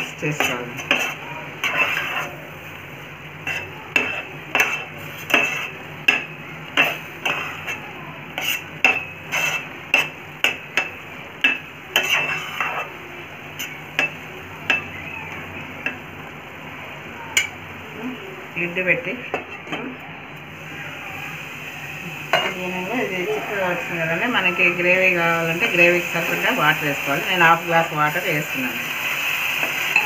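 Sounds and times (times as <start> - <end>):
spoon scraping pot: 0.3 - 2.4, 3.4 - 5.8, 6.7 - 13.0.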